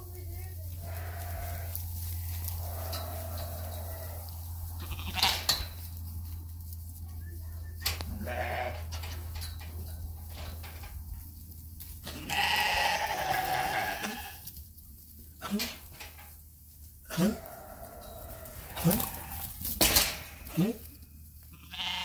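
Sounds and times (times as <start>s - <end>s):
steady low hum: 0.0s - 21.8s
lambs bleating: 0.7s - 5.6s, 8.1s - 8.9s, 12.1s - 14.5s, 17.1s - 20.9s, 21.5s - 22.0s.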